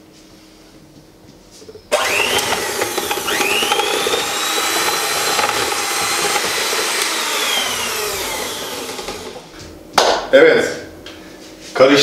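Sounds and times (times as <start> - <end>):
electric hand mixer whining: 1.9 - 9.6.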